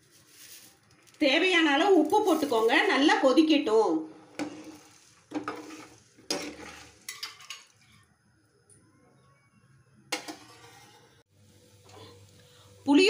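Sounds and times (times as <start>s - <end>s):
ladle scraping metal pan: 4.1s - 7.7s, 10.2s - 11.2s.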